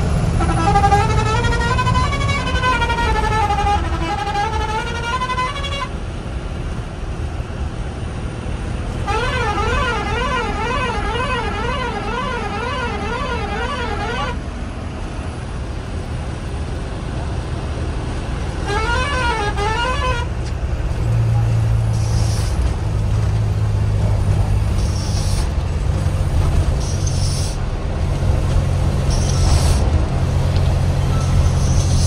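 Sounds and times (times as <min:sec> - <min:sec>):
truck engine rumble: 0:00.0 - 0:32.0
truck musical horn: 0:00.2 - 0:06.0, 0:09.0 - 0:14.5, 0:18.5 - 0:20.4.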